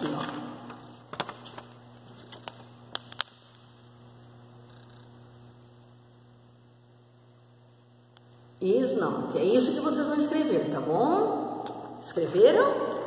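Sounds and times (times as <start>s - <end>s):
low electrical hum: 0.0s - 13.0s
paper crinkling: 0.8s - 3.3s.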